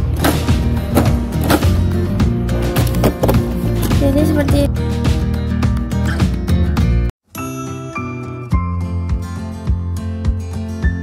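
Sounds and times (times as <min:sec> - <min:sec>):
background music with thumping beat: 0:00.0 - 0:07.1.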